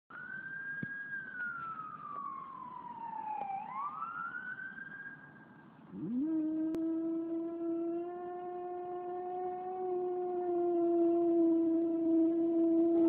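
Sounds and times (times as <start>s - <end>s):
fire truck siren wailing: 0.1s - 13.0s
dog howling: 5.9s - 13.0s.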